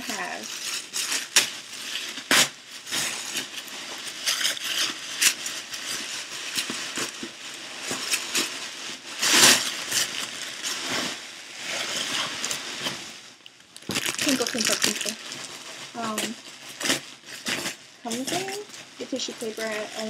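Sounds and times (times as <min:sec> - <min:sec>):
paper and plastic crinkling: 0:00.0 - 0:20.0.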